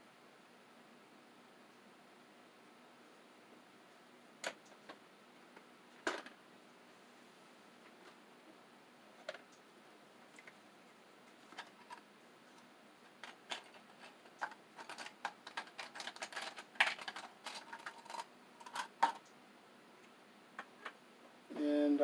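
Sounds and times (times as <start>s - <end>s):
small parts clicking and rattling: 13.1s - 19.3s.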